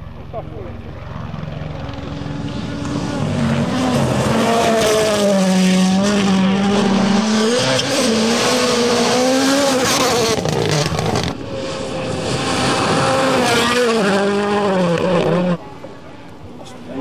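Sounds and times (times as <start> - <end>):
rally car engines at high revs: 1.3 - 16.0.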